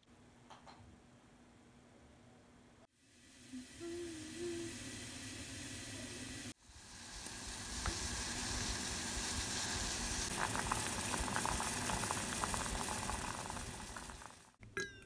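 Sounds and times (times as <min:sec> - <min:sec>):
broth simmering hiss: 0:02.9 - 0:14.6
bubbling pops: 0:10.3 - 0:14.5.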